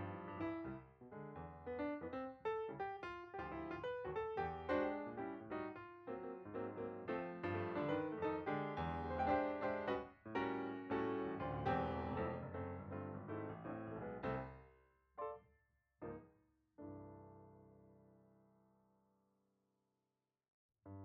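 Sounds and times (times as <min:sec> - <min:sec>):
piano music: 0:00.0 - 0:00.8, 0:01.4 - 0:14.5.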